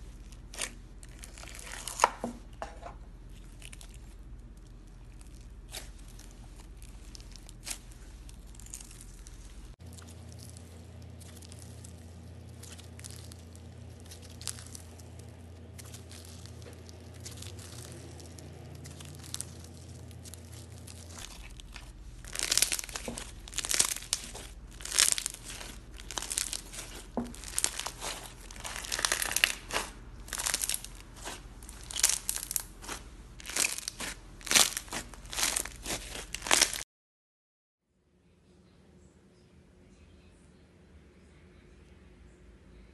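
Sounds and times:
slime crackling pops: 22.3s - 36.8s.

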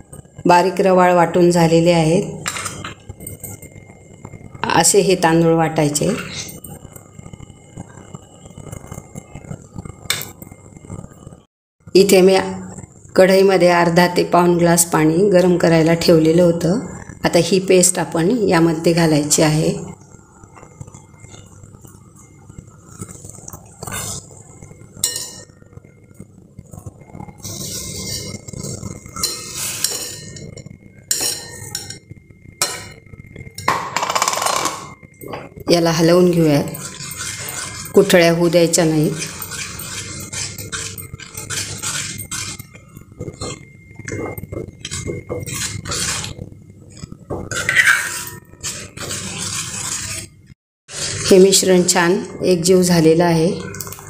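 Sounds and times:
ladle scraping metal pan: 36.6s - 42.7s, 47.4s - 50.3s.

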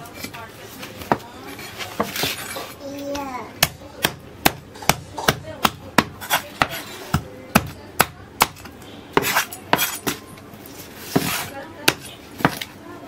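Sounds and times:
knife scraping fish scales: 6.2s - 7.1s, 8.6s - 10.2s, 10.8s - 12.7s.

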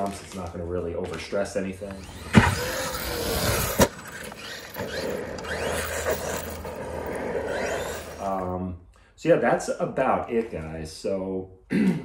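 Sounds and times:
electric motor whining: 1.8s - 8.5s.

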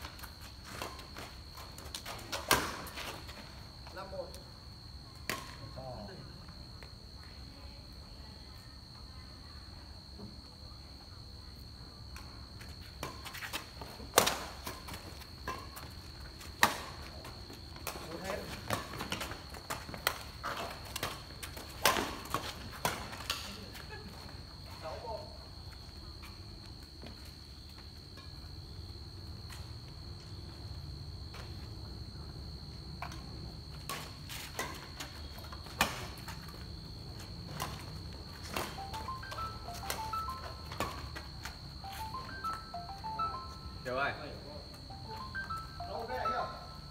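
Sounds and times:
rackets hitting a shuttlecock: 21.8s - 23.5s.

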